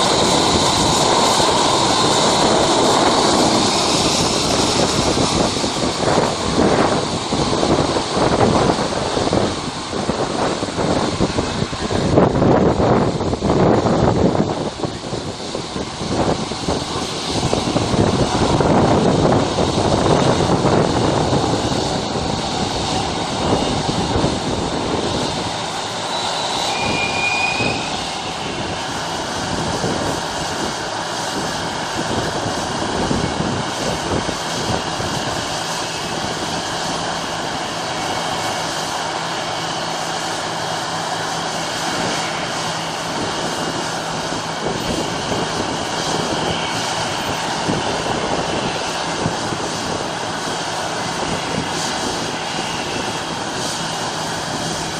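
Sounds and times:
jet engines whining: 0.0 - 54.9
short high whistle: 26.1 - 28.2.

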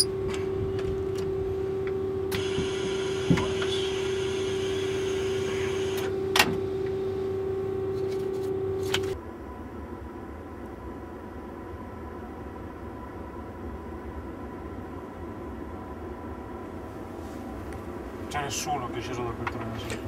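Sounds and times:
electrical hum of cab equipment: 0.0 - 20.0
hiss of air: 2.4 - 6.0
sharp clicks from controls: 5.9 - 7.0, 8.8 - 9.2, 19.4 - 20.0.

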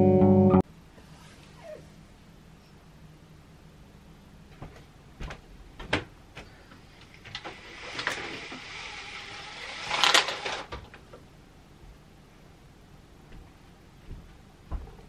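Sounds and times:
window blind slats rattling: 7.2 - 11.0.

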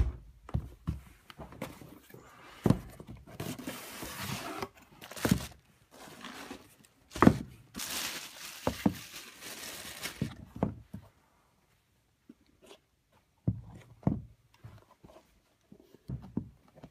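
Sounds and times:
plastic bag crinkling: 7.7 - 10.4.

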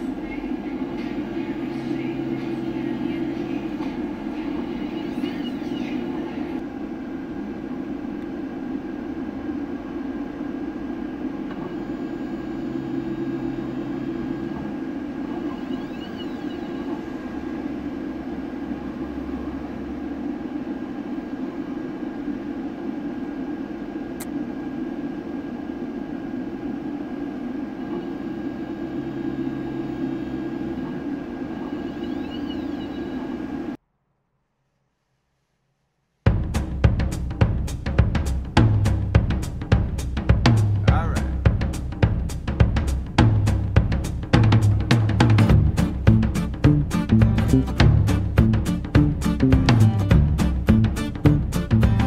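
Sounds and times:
printer machine hum: 0.0 - 33.8, 44.2 - 52.0.

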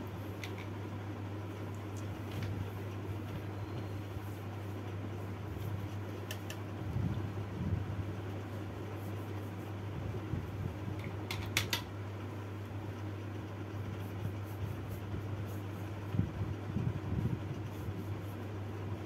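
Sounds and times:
low room hum: 0.0 - 19.0.

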